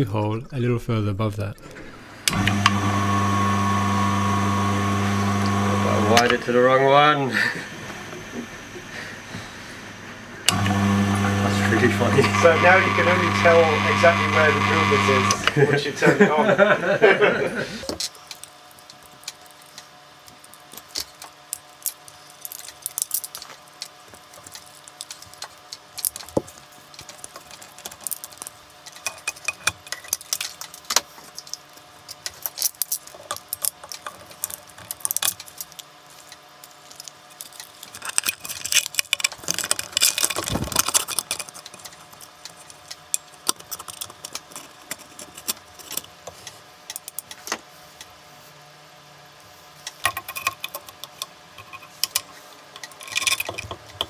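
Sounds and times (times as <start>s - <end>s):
crimping tool squeezing: 18.0s - 46.1s.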